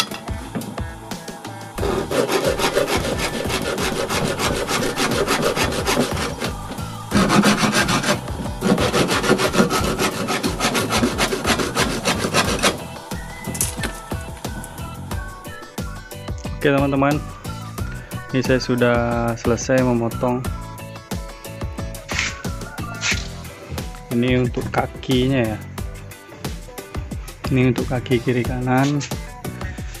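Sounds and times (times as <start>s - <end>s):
handsaw cutting wood: 1.8s - 13.3s.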